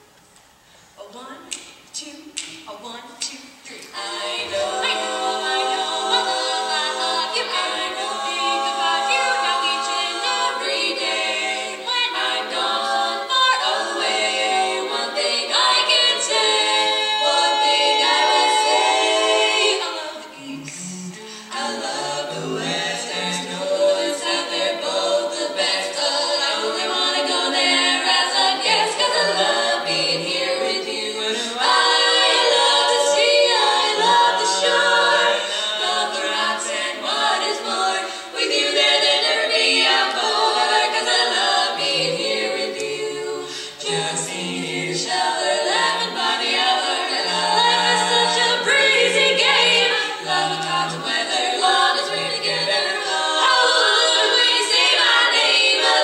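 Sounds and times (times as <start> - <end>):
women singing a cappella: 0.8 - 56.0.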